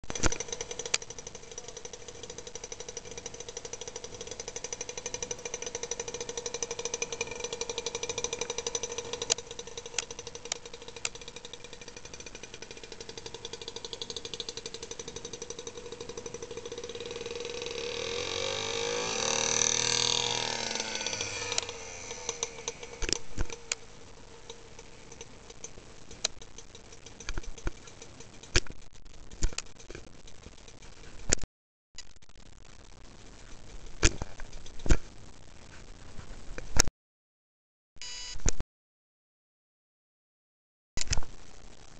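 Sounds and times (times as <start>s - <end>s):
outboard motor running: 0.0s - 23.8s.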